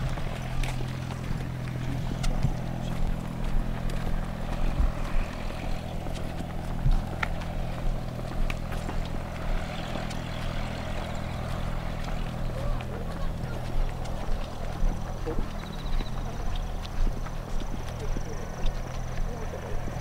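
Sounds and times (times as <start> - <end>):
aircraft engine hum: 0.0 - 20.0
footsteps on asphalt: 0.0 - 20.0.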